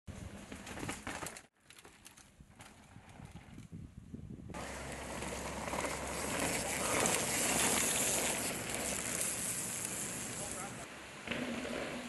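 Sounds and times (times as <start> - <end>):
mountain bike rolling over dirt: 0.2 - 3.8, 4.6 - 12.0
wind on microphone: 2.9 - 4.6.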